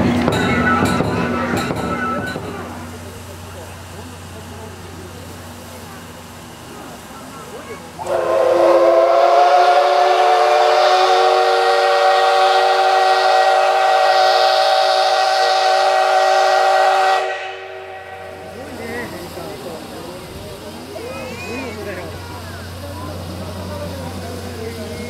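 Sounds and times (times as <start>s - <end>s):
steam locomotive whistle: 8.0s - 19.1s.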